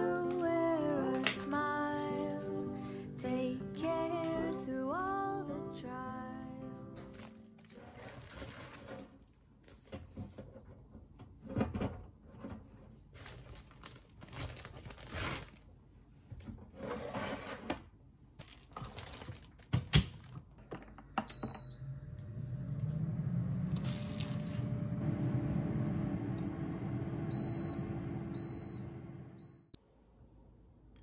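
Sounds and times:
oven fan hum: 21.3s - 29.8s.

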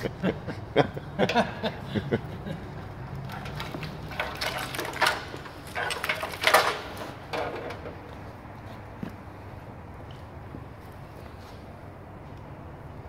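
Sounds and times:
wiring loom rattling: 3.1s - 8.2s.

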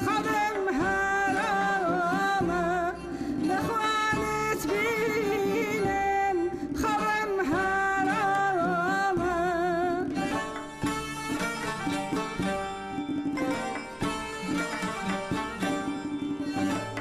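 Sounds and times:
woman singing with vibrato: 0.0s - 10.8s
faint instruments: 9.2s - 17.0s.

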